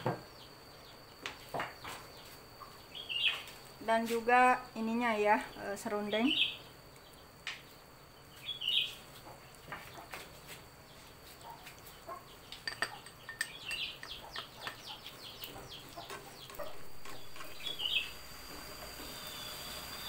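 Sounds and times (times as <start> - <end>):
birds chirping: 8.1 - 10.1, 10.9 - 20.0
glass jar clinking on pan: 12.6 - 14.8.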